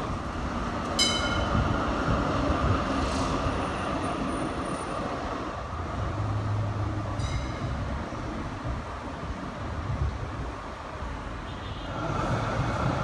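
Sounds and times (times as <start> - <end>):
traffic noise: 0.0 - 13.0
trams rumbling: 0.0 - 13.0
metallic tram ding: 1.0 - 1.6, 7.2 - 7.8.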